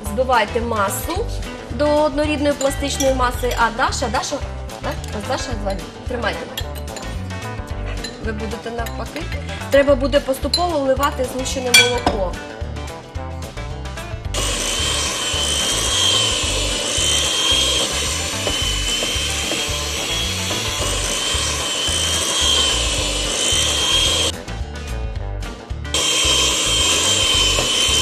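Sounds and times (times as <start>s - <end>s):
electric hand mixer running: 14.4s - 24.3s, 25.9s - 28.0s.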